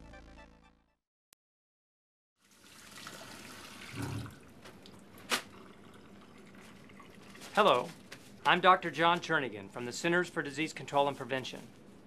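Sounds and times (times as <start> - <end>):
tap water running into sink: 2.4 - 7.4.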